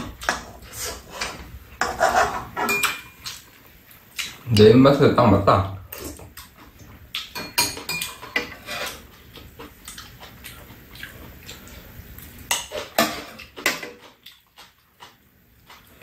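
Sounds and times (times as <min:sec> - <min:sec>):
utensils clinking against dishes: 0:00.0 - 0:03.4, 0:07.3 - 0:09.1.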